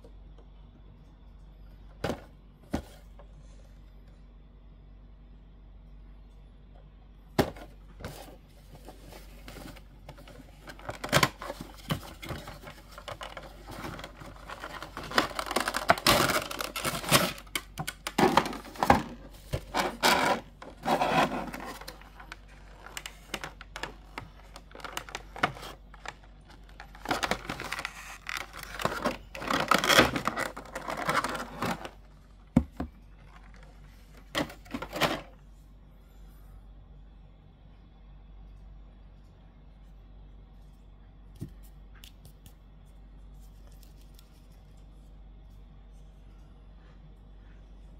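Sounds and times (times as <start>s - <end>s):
plastic packaging crinkling: 8.9s - 32.1s.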